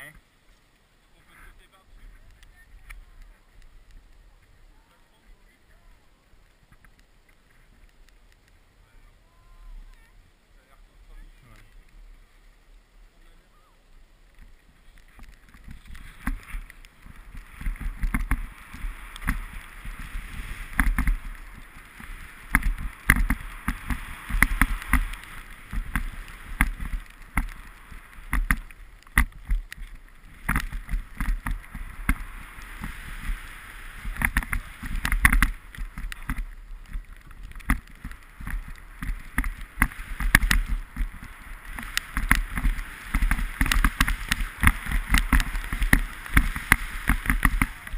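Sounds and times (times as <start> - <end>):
snowboard scraping over snow: 10.6 - 47.9
wind on microphone: 14.3 - 47.9
snowboard knocks and thumps: 15.2 - 47.9.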